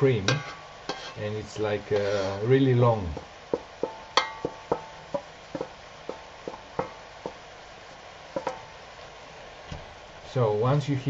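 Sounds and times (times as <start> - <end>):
wooden spoon knocking on metal pot: 3.1 - 7.4, 8.4 - 8.7.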